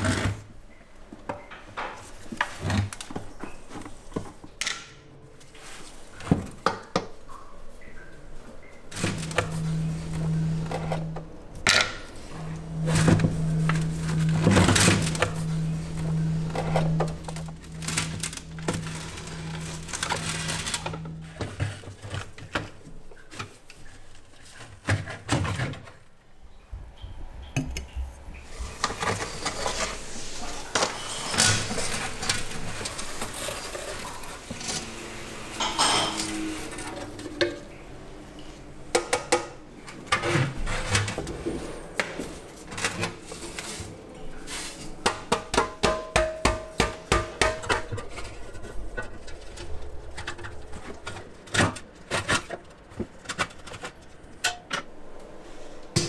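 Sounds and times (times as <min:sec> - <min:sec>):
low hum: 0:07.3 - 0:23.2, 0:26.3 - 0:38.8, 0:47.2 - 0:56.0
metal clinks and scrapes: 0:35.6 - 0:37.0.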